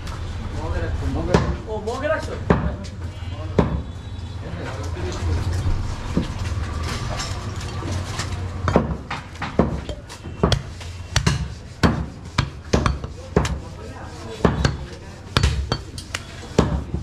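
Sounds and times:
cleaver chopping into wooden block: 0:08.7 - 0:13.6, 0:14.4 - 0:15.9.

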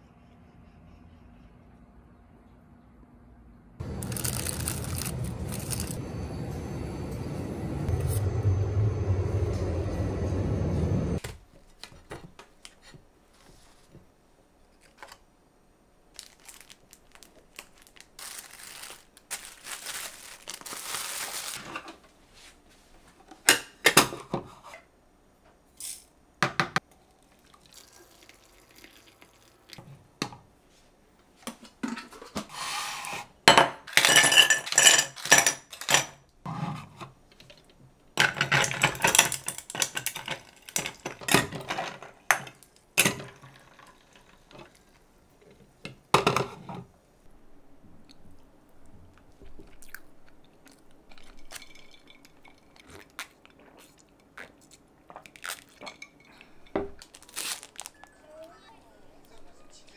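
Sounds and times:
steady hum: 0:00.0 - 0:11.2
rustling: 0:16.1 - 0:23.2
dishes and utensils clinking: 0:33.5 - 0:36.2, 0:55.8 - 0:57.0.

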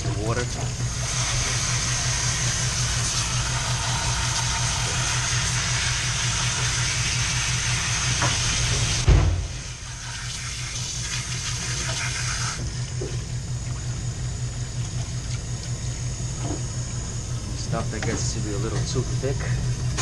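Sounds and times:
hose water spraying into sink: 0:00.0 - 0:13.2
steady low hum: 0:00.0 - 0:20.0
loud thump: 0:09.0 - 0:09.6.

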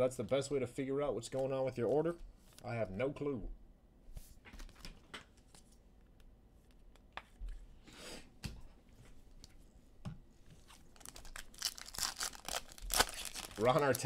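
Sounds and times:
wrapper tearing and crinkling: 0:10.6 - 0:14.0
card packs clicking and rustling: 0:10.7 - 0:14.0.

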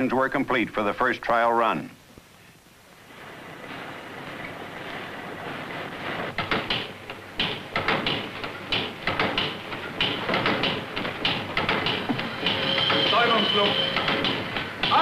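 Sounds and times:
mechanical clanks and hissing puffs: 0:03.2 - 0:15.0
engine hissing: 0:08.3 - 0:15.0.

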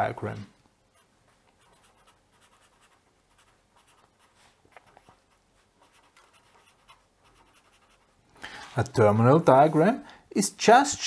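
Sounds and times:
felt-tip pen scratching on paper: 0:00.9 - 0:08.2.

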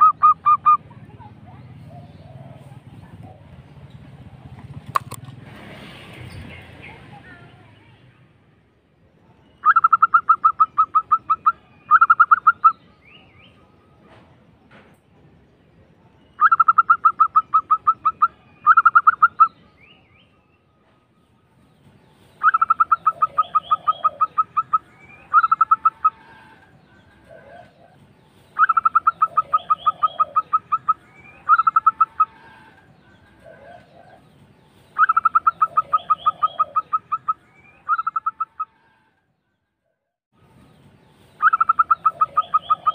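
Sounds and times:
dove cooing trill: 0:00.0 - 0:00.9, 0:01.8 - 0:04.5, 0:09.6 - 0:12.8, 0:16.4 - 0:19.6, 0:22.4 - 0:34.3, 0:35.0 - 0:38.9, 0:41.4 - 0:42.9.

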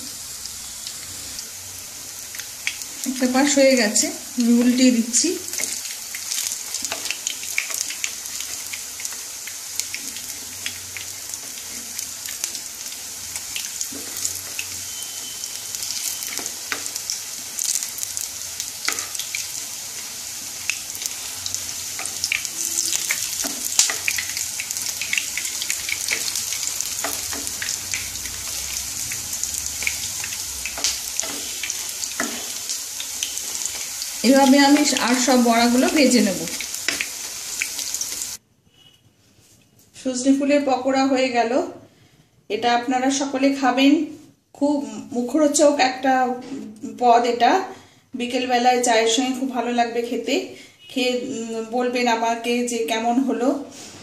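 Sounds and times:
deep-frying sizzle with pops: 0:00.0 - 0:38.4
wooden spatula turning food: 0:05.5 - 0:38.4.

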